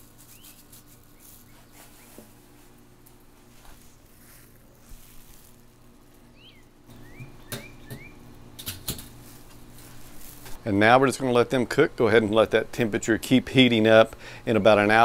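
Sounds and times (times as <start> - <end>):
steady low hum: 0.0 - 15.0
bird chirps: 6.3 - 8.2.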